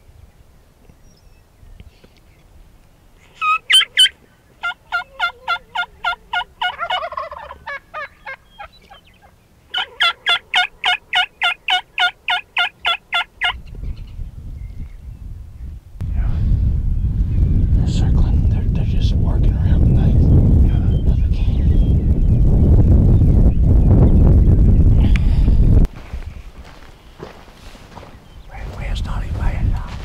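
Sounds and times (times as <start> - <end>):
turkey calling: 3.2 - 13.6.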